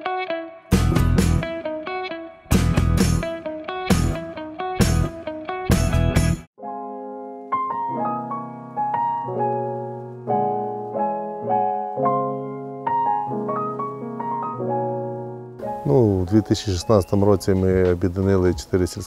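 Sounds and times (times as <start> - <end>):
gentle piano melody: 6.6 - 19.0.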